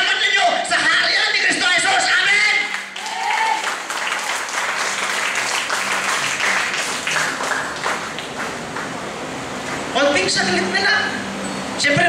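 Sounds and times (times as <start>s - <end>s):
congregation applauding: 2.6s - 9.1s.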